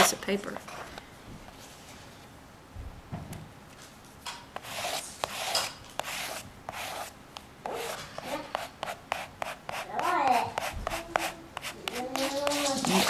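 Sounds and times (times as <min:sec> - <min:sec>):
plastic scraper scratching paper: 0:04.6 - 0:07.1, 0:07.7 - 0:13.0.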